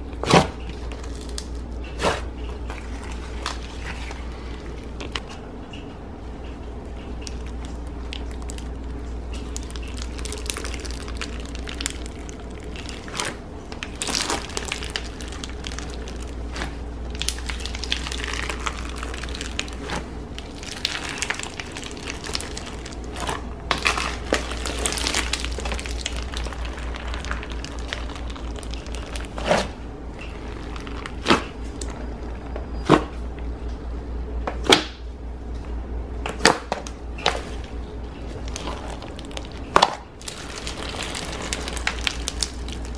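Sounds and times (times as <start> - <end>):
steady low hum: 0.0 - 42.9
slime beads crunching and crackling: 0.7 - 5.3, 7.1 - 32.1, 38.2 - 42.9
slime popping: 7.2 - 32.1, 38.4 - 42.9.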